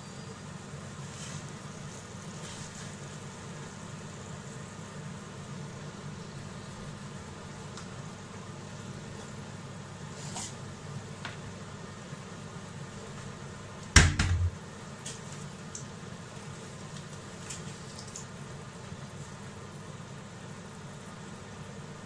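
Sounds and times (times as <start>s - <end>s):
oil sizzling with pops: 13.8s - 19.4s
loud knock with rattle: 14.0s - 14.6s.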